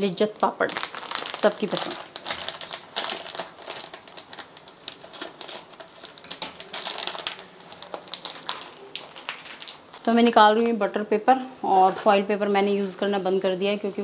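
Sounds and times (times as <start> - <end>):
plastic packet crinkling: 0.6 - 10.0
dry crackers clicking and crackling: 0.6 - 10.8.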